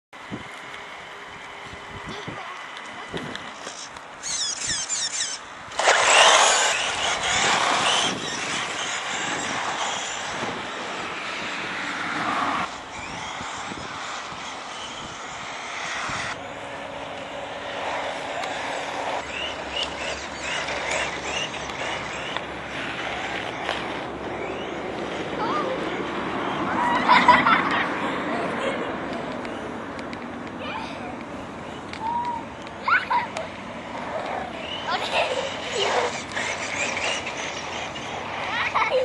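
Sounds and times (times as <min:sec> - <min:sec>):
electric motor whine: 0:00.2 - 0:26.9
tyre noise on asphalt: 0:00.2 - 0:39.0.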